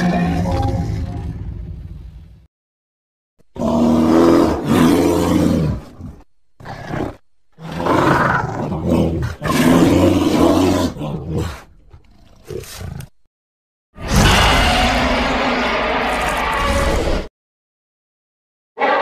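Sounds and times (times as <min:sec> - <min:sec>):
monster roars: 0:14.0 - 0:17.3.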